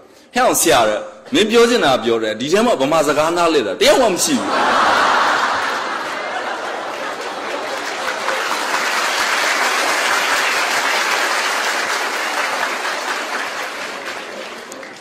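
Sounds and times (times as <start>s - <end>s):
audience applauding: 4.6s - 15.0s.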